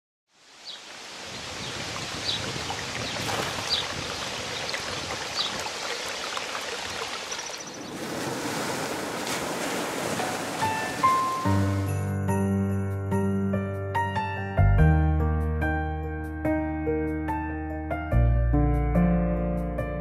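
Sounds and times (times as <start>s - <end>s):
rushing water: 0.3s - 12.0s.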